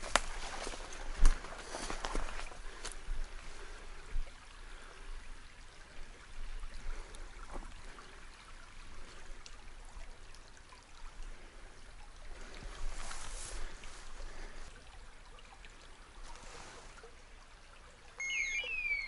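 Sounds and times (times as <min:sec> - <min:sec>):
brook trickling over stones: 0:00.0 - 0:19.0.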